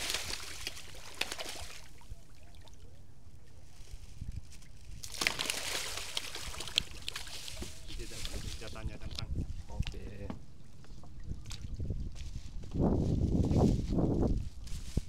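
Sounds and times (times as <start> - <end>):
fish splashing at water surface: 0.0 - 2.9, 4.9 - 8.7.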